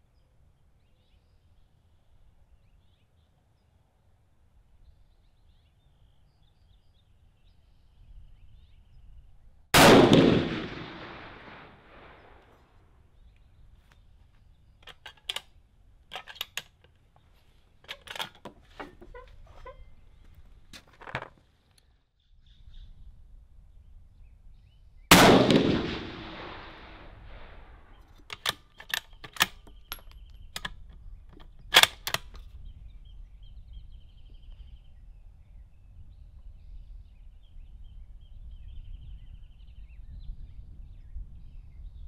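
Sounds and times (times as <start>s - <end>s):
rifle shots with echo: 9.8s - 12.6s, 25.1s - 28.4s
metallic rifle clicks: 14.8s - 17.1s, 17.8s - 19.8s, 28.0s - 32.5s.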